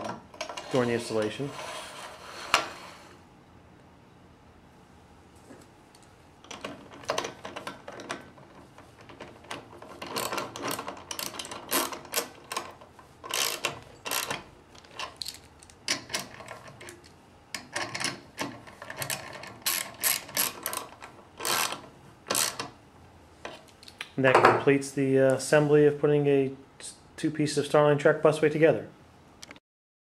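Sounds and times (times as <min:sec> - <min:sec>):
ratchet wrench clicking: 0:13.3 - 0:14.4, 0:19.7 - 0:22.6.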